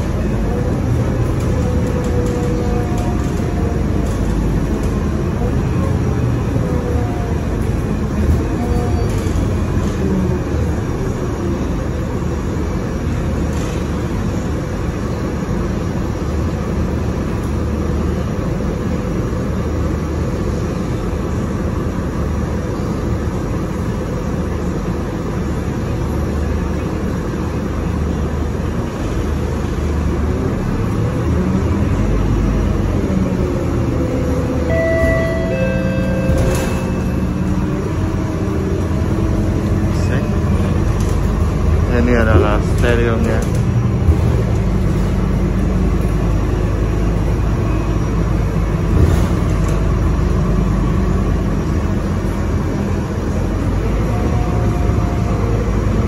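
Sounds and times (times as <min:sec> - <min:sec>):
bus engine and road rumble: 0:00.0 - 0:56.0
high tones ringing: 0:34.6 - 0:37.7.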